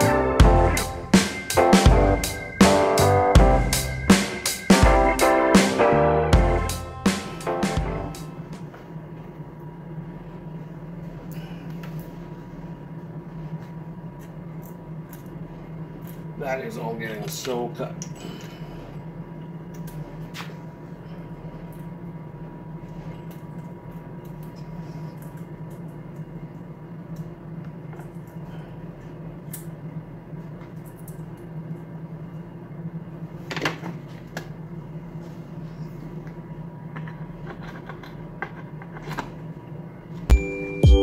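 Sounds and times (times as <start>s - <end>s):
steady low hum: 0.0s - 41.0s.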